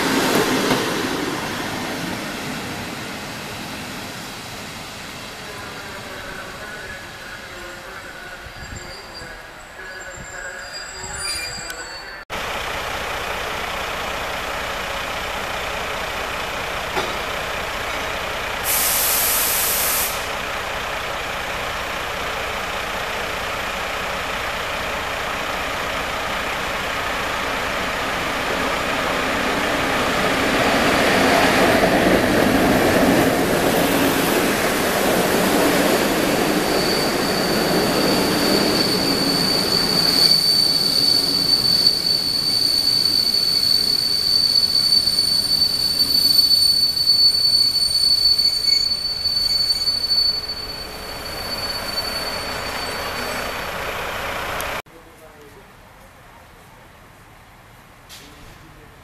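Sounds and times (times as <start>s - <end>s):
electric train rolling past: 0.0s - 18.9s, 20.2s - 54.8s
high wheel squeal: 6.8s - 12.3s, 24.2s - 54.8s
brief hiss: 18.6s - 20.4s.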